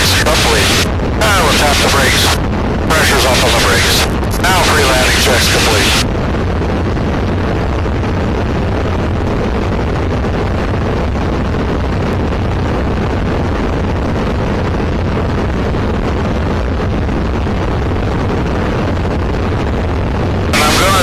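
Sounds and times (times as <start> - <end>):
aircraft engine and propeller drone: 0.0 - 10.8, 20.4 - 21.0
wind noise: 0.0 - 21.0.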